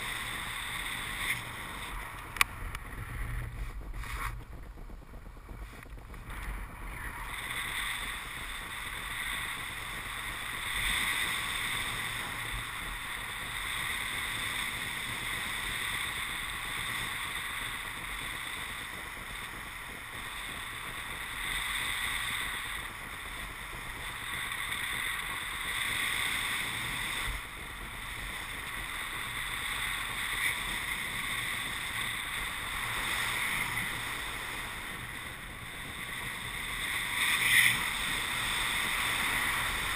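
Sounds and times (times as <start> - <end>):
wind on microphone: 0.0 - 39.9.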